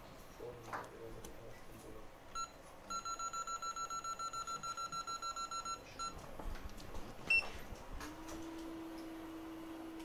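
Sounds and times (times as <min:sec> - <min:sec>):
short electronic beeps: 0:02.4 - 0:06.2.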